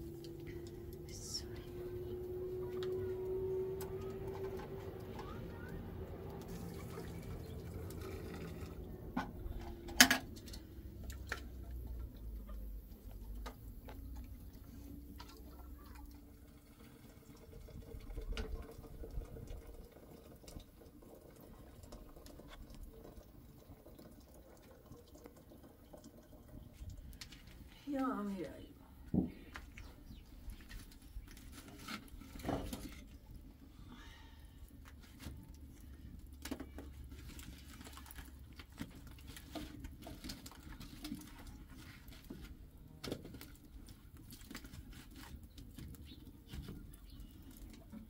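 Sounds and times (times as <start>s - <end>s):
low steady hum: 0.0s - 48.0s
water poured from a teapot: 6.4s - 9.0s.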